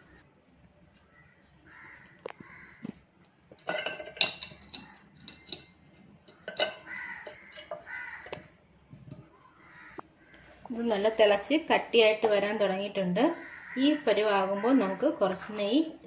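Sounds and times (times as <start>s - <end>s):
crows cawing: 1.1s - 3.0s, 6.7s - 8.5s, 9.5s - 10.6s, 13.4s - 15.6s.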